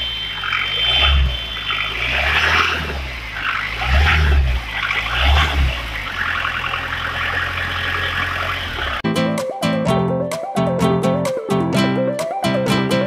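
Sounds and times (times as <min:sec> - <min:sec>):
diesel engine revving and idling: 0:00.0 - 0:09.0.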